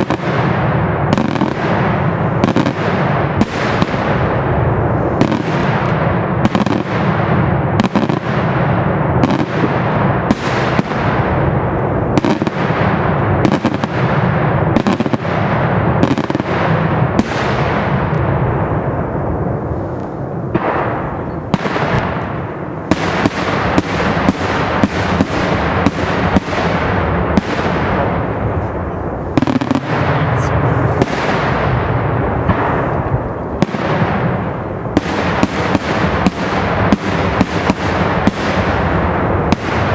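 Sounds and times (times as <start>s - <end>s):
firecracker crackle: 0.0s - 39.9s
loud bangs: 20.5s - 39.9s.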